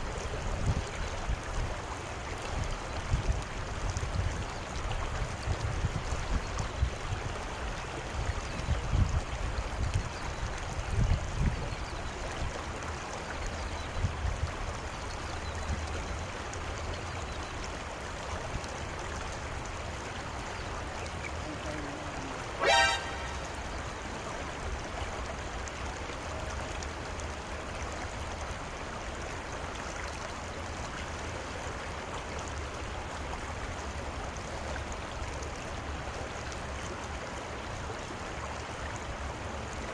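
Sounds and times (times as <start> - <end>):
flowing river water: 0.0 - 39.9
short rising toot: 22.4 - 23.8.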